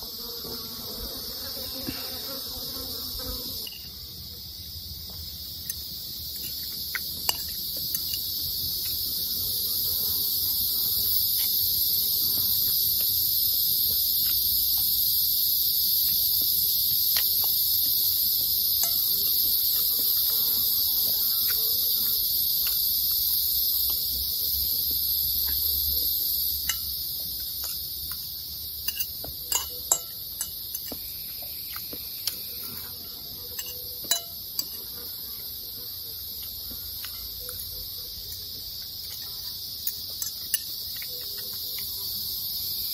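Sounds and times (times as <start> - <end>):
high-pitched insect chorus: 0.0 - 42.9
cutlery clicking against a plate: 28.9 - 31.0, 33.5 - 34.8.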